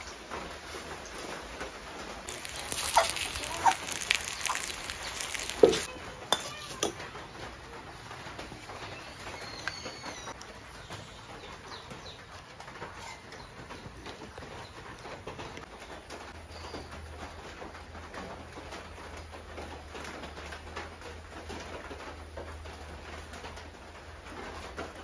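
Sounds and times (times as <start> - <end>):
food sizzling in oil: 2.2 - 7.0.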